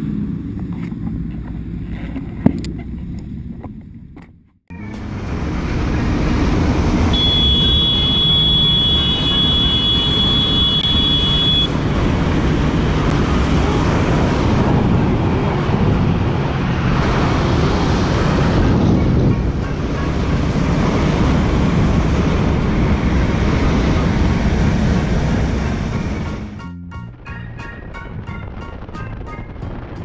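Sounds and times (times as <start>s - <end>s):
motorcycle engine rumble: 0.0s - 26.6s
thin high whistle: 7.1s - 11.7s
wind rushing: 10.0s - 26.6s.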